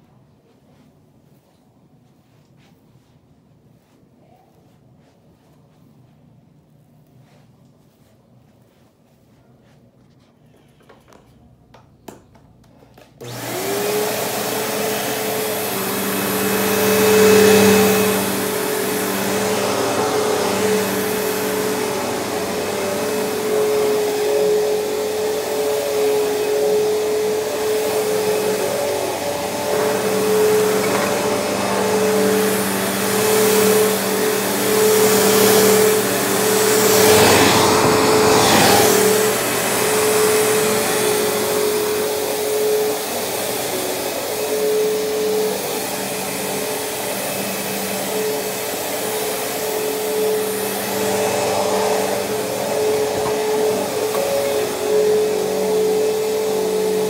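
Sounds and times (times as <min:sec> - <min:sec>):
vacuum cleaner on carpet: 0:13.0 - 0:57.0.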